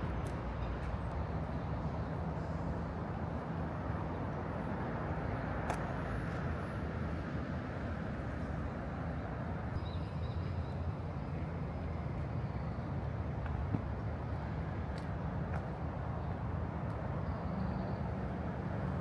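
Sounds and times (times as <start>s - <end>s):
city road traffic hum: 0.0s - 19.0s.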